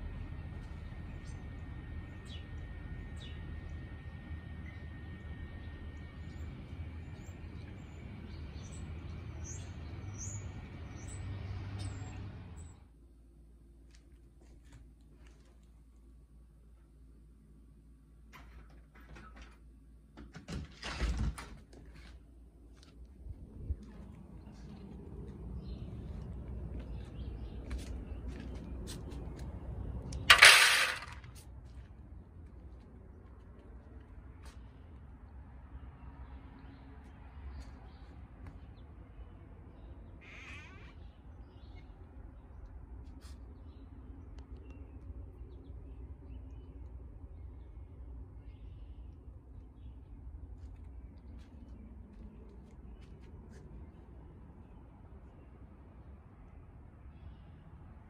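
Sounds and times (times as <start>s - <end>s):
distant traffic rumble: 0.0s - 58.0s
kibble clattering in foil tray: 30.3s - 31.2s.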